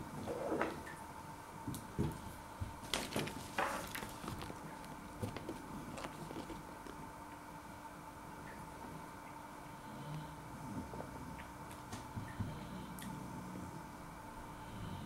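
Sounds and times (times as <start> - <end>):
faint hum: 0.0 - 15.0
food packet rustling: 2.8 - 7.0.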